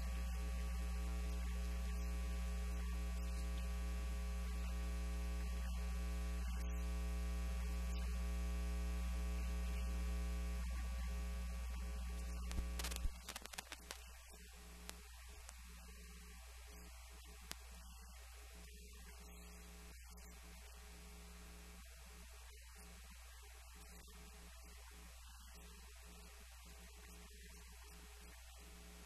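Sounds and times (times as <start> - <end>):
electrical mains hum: 0.0 - 29.0
clicks: 10.6 - 16.1, 16.8 - 18.0.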